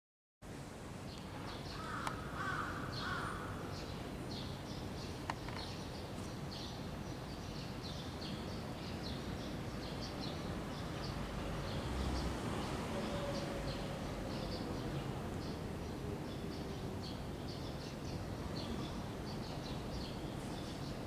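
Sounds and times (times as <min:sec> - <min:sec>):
small birds chirping: 0:01.1 - 0:12.3, 0:13.4 - 0:21.0
harsh caw-like bird calls: 0:01.7 - 0:03.8.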